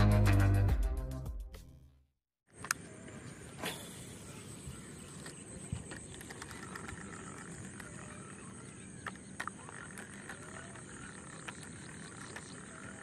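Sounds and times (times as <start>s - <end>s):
frogs calling: 4.1s - 13.0s
sharp clicks: 5.2s - 8.1s, 9.0s - 13.0s.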